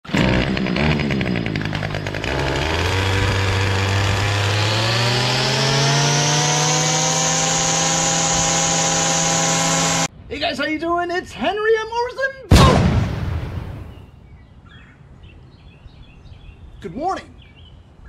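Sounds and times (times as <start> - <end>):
small engine running: 0.0 - 10.1.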